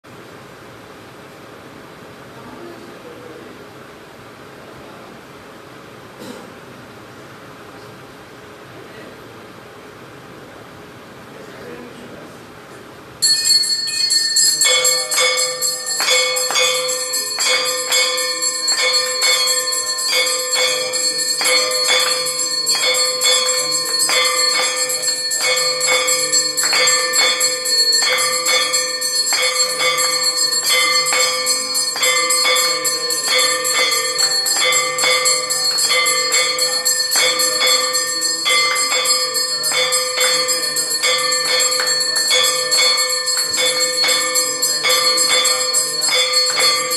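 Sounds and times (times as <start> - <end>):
small bells jangling: 13.2 - 46.9.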